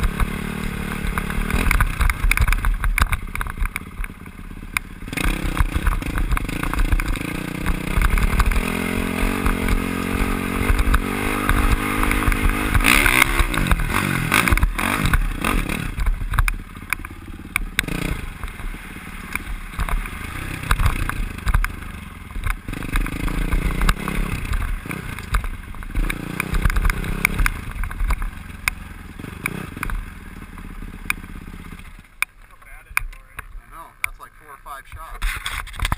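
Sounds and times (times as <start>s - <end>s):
dirt bike engine revving: 0.0s - 35.9s
rattles and clatter: 35.2s - 35.9s.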